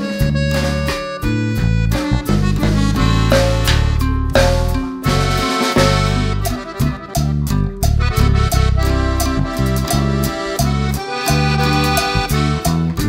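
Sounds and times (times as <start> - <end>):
instrumental background music: 0.0 - 13.0.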